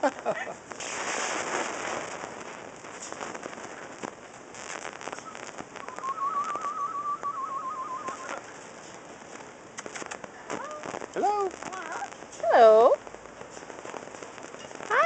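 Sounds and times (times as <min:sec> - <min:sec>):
steady hiss: 0:00.0 - 0:15.0
parrot whistling warbling note: 0:05.8 - 0:08.4.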